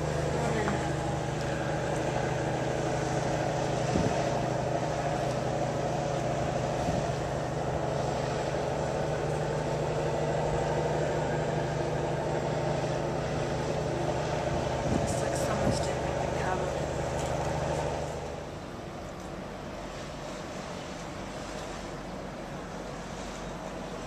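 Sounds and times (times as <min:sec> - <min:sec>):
ship mechanical hum: 0:00.0 - 0:24.0
wind and water rushing: 0:00.0 - 0:24.0.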